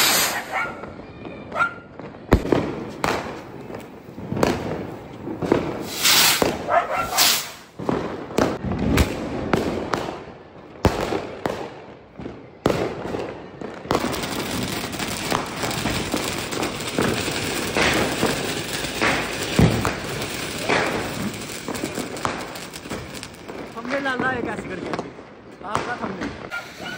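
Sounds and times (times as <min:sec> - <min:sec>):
fountain firework hissing: 0:00.0 - 0:00.6, 0:05.8 - 0:07.7, 0:14.0 - 0:23.8, 0:26.4 - 0:26.9
firecrackers cracking and banging: 0:00.0 - 0:26.9.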